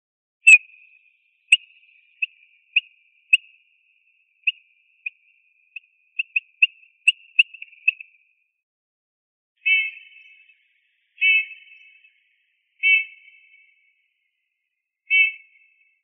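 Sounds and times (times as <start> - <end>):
bird piping calls: 0.4 - 3.7, 4.3 - 8.2, 9.6 - 10.6, 11.2 - 12.2, 12.8 - 13.8, 15.1 - 15.8.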